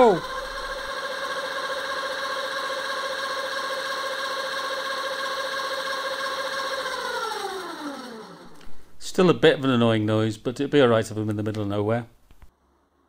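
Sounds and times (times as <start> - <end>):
electric motor whining: 0.0 - 8.6.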